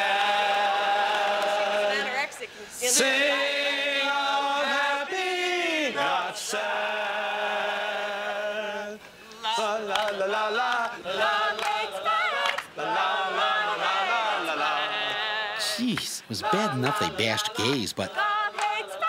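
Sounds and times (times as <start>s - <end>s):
group singing unaccompanied: 0.0s - 19.0s.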